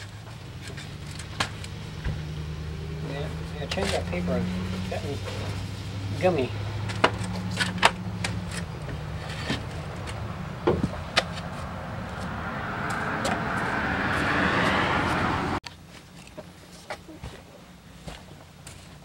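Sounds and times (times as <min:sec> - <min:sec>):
vehicle passing: 0:00.8 - 0:15.6.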